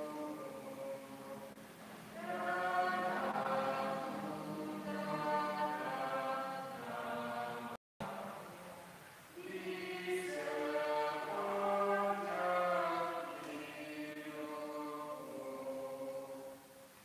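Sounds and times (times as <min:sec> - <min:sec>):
choir singing a hymn: 0:00.0 - 0:16.8.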